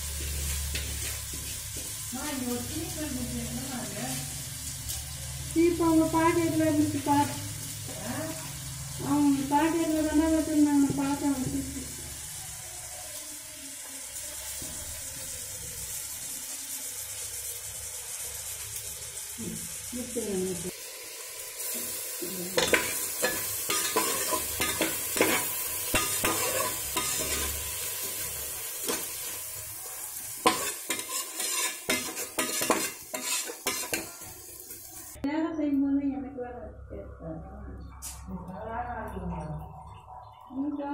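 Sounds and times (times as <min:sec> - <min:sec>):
rice sizzling in oil: 0:00.0 - 0:35.2
metal ladle scraping pot: 0:22.6 - 0:29.3, 0:30.4 - 0:34.2.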